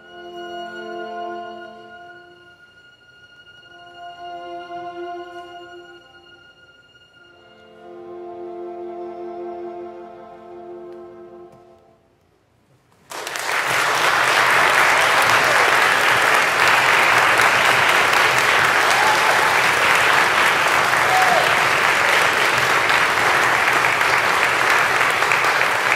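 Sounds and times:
music: 0:00.0 - 0:12.2
audience applause: 0:13.1 - 0:25.9.

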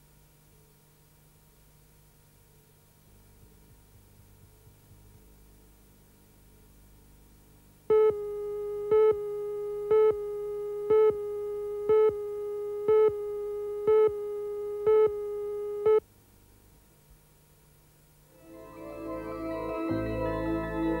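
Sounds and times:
steady beep tone: 0:07.9 - 0:16.0.

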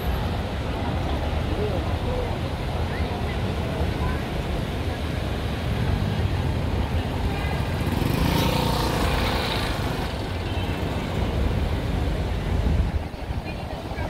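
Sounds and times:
low traffic rumble: 0:00.0 - 0:14.0
motor vehicle passing: 0:07.5 - 0:12.0.

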